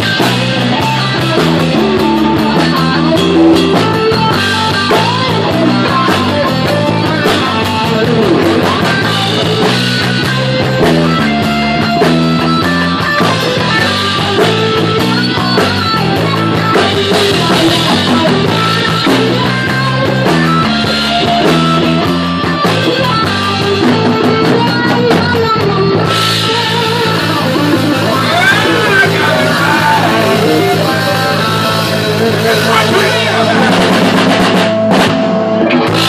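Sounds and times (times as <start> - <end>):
drum kit: 0.0 - 36.0
electric guitar: 0.0 - 36.0
person singing: 23.0 - 34.0.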